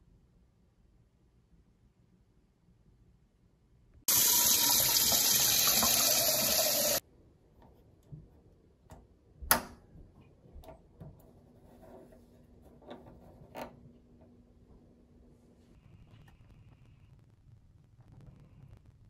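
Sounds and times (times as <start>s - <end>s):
tap water running into metal pot: 4.1s - 7.0s.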